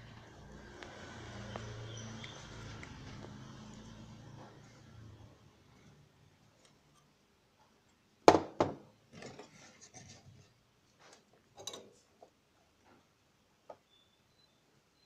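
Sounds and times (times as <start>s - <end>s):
tools handled on a workbench: 9.1s - 12.4s.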